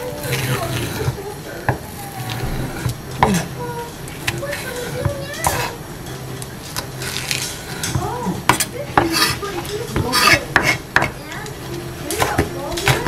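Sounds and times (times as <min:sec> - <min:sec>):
knife chopping on wooden board: 0:10.0 - 0:11.2.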